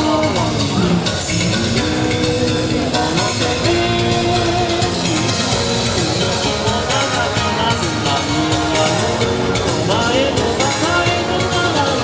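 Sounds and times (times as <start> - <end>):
steady drum beat: 0.0 - 11.9
gliding melody line: 0.0 - 12.0
upbeat song: 0.0 - 12.0.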